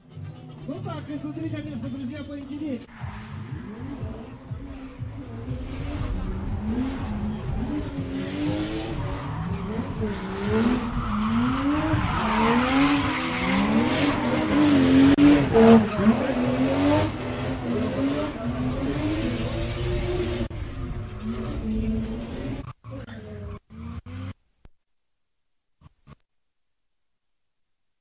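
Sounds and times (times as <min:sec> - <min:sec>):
car engines revving: 0:00.6 - 0:24.4
tyres screeching: 0:05.7 - 0:21.6.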